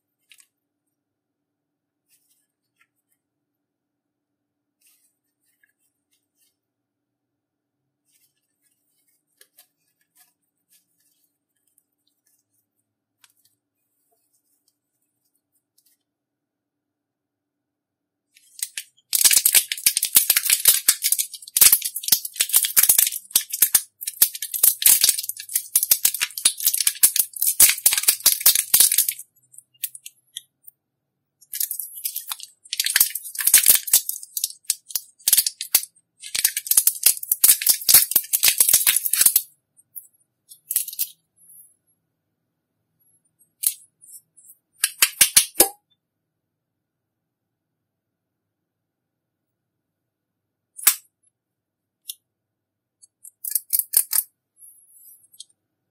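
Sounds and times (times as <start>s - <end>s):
slime crackling and popping: 18.4s - 30.1s, 31.4s - 39.5s.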